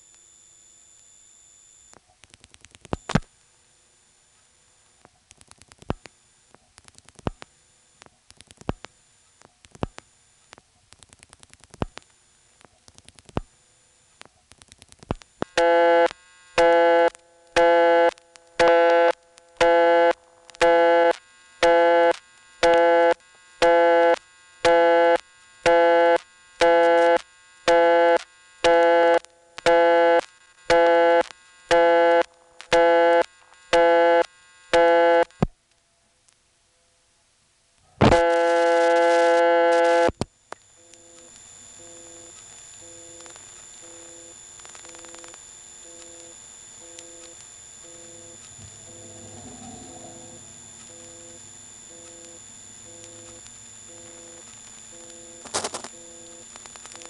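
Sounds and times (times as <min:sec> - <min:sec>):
faint dialing clicks: 0:38.2 - 0:49.5, 0:50.8 - 0:57.0
busy signal tone: 0:47.8 - 0:55.1.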